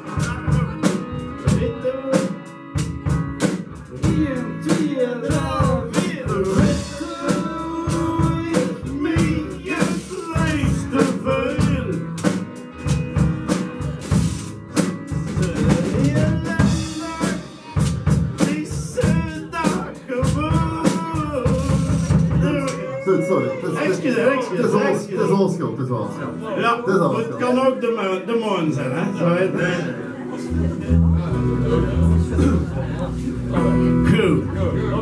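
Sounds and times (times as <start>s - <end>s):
man singing into a microphone: 0.0s - 2.6s, 3.9s - 12.2s, 15.3s - 17.8s, 18.4s - 24.5s
acoustic guitar: 0.0s - 24.6s, 28.8s - 35.0s.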